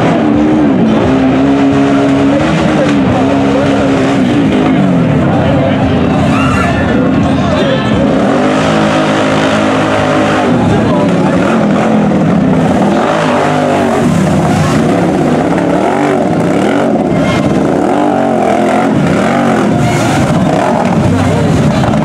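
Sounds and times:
atv engine revving: 0.0s - 22.0s
quad churning through mud: 7.9s - 22.0s.

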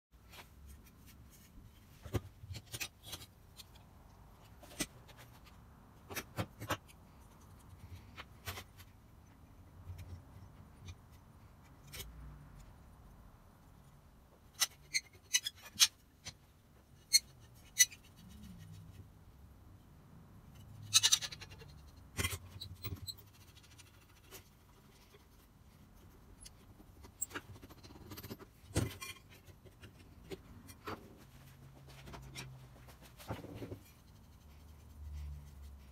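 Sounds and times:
metal parts clicking and knocking: 26.0s - 31.2s.

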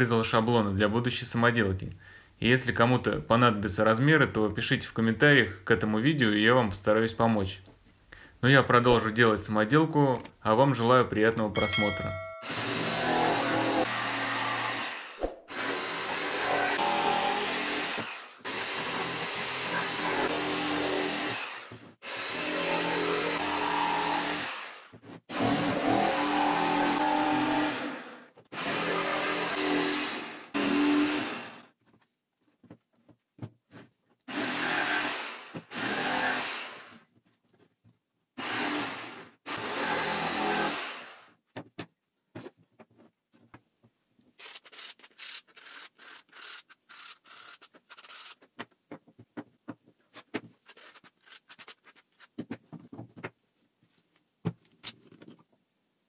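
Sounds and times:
electric jigsaw cutting wood: 12.4s - 31.7s, 34.3s - 37.0s, 38.4s - 41.3s.

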